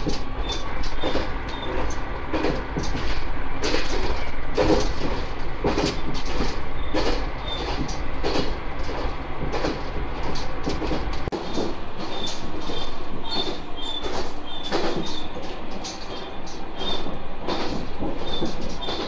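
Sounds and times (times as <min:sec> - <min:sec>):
railcar low rumble: 0:00.0 - 0:19.0
wheels clacking over rail joints: 0:00.0 - 0:19.0
short high squeaks: 0:00.4 - 0:01.9, 0:12.0 - 0:19.0.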